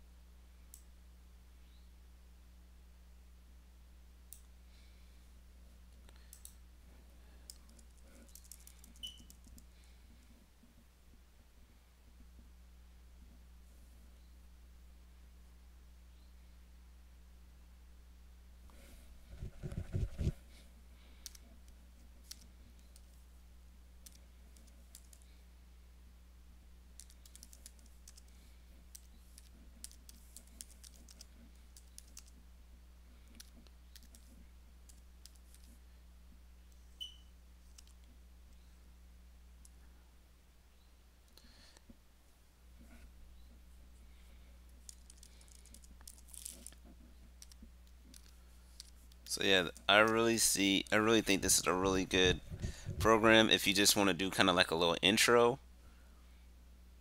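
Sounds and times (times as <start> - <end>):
steady low hum: 0.0 - 57.0
keyboard and mouse clicks: 27.0 - 28.3, 28.9 - 32.4, 33.3 - 34.3.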